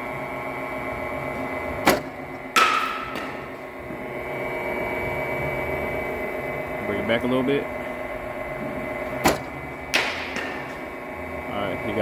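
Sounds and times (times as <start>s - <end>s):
steady hum: 0.0s - 12.0s
metal bat hitting ball: 1.9s - 3.6s, 9.3s - 10.8s.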